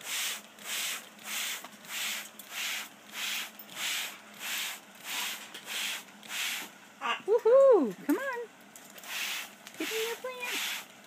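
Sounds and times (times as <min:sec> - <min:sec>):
spray bottle hissing mist: 0:00.0 - 0:06.7, 0:09.0 - 0:10.9.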